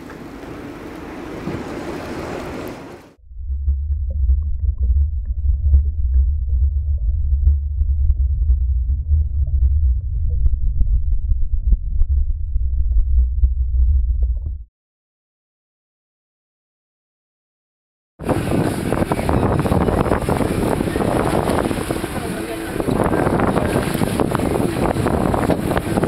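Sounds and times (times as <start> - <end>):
muffled underwater churning water: 0.0 - 14.6, 18.2 - 26.0.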